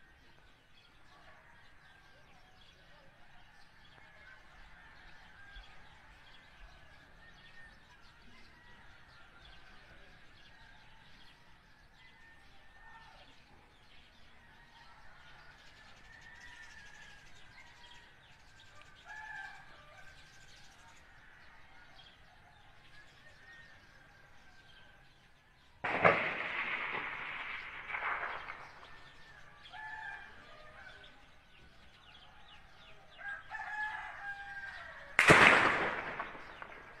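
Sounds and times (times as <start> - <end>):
faint birds chirping: 0.0 - 35.2.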